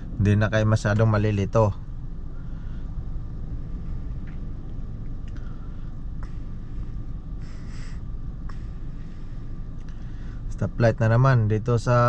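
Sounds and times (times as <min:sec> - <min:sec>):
car engine idling: 0:00.0 - 0:12.0
faint clicks: 0:05.0 - 0:05.5.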